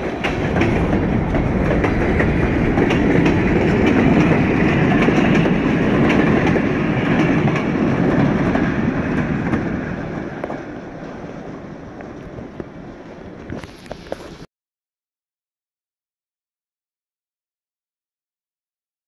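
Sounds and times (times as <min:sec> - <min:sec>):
wheels clicking over rail joints: 0:00.0 - 0:14.4
rumble of train wheels on rails: 0:00.0 - 0:14.5.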